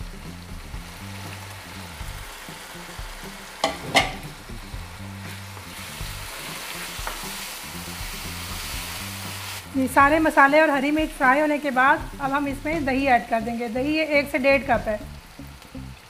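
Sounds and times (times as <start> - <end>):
chicken sizzling in oil: 0.0 - 16.0
spoon knocking against pan: 3.6 - 4.4.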